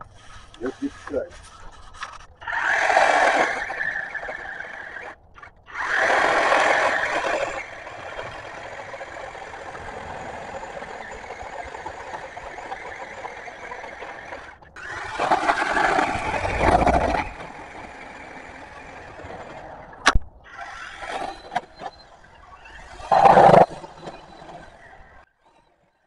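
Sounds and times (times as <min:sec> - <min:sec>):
chainsaw cutting into tree trunk: 0:02.5 - 0:05.2, 0:05.8 - 0:10.0.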